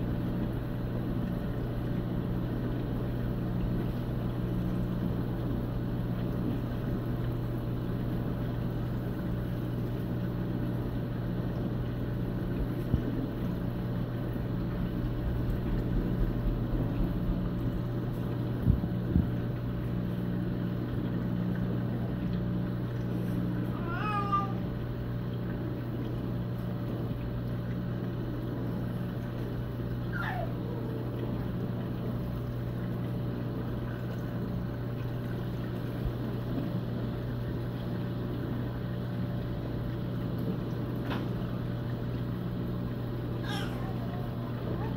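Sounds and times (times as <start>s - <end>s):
aquarium pumps humming: 0.0s - 44.9s.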